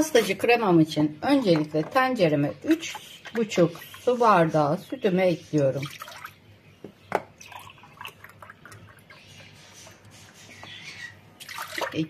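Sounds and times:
milk splashing and trickling: 5.7 - 6.4, 7.4 - 9.5, 11.4 - 12.0.

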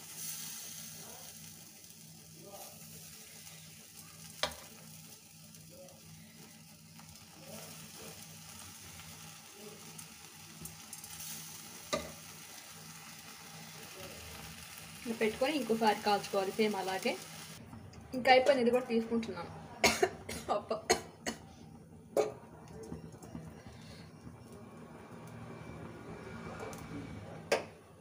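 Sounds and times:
chicken sizzling on a grill: 0.0 - 17.6, 22.6 - 27.6
steady low hum: 13.7 - 28.0.

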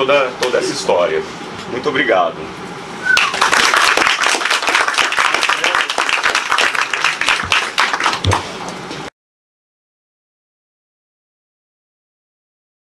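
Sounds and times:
audience applauding: 3.1 - 8.6.

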